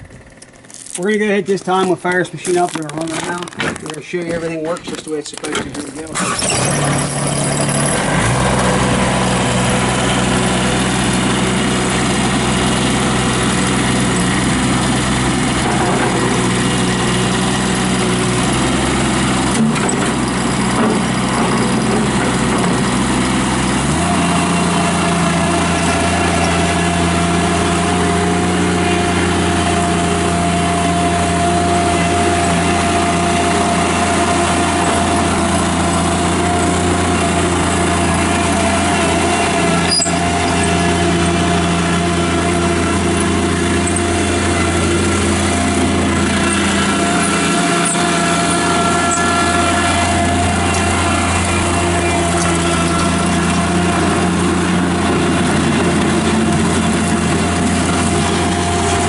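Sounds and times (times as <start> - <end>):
diesel engine starting and running: 0.0 - 59.0
steady whine: 24.4 - 59.0.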